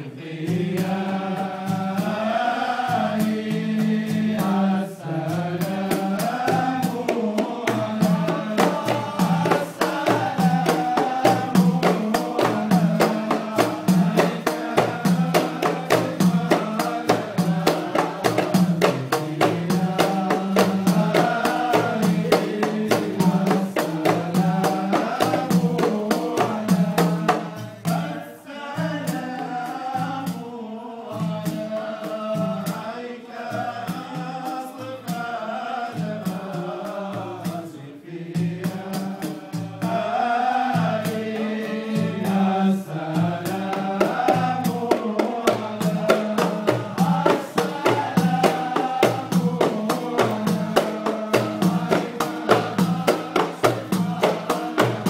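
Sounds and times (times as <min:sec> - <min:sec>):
men chanting: 0:00.0 - 0:55.0
frame drums beating: 0:00.2 - 0:55.0.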